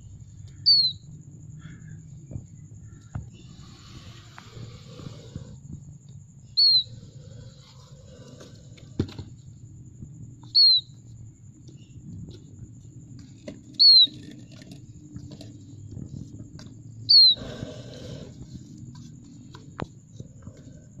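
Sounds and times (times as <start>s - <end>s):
faint low hum: 0.0s - 21.0s
bird chick peeping: 17.1s - 17.4s.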